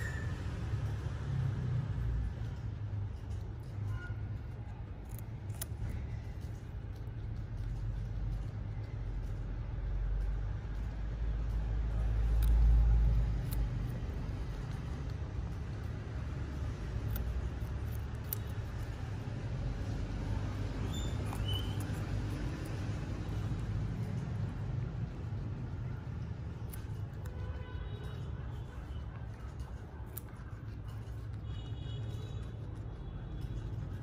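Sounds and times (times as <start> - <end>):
high squeak: 0.0 - 0.5
guinea pigs chewing vegetables: 0.0 - 34.0.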